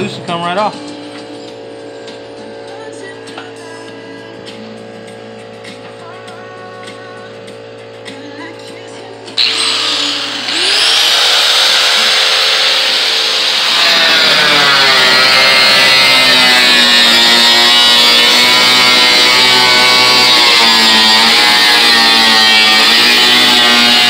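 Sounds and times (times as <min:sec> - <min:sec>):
cutoff wheel cutting sheet steel: 0:09.4 - 0:24.0.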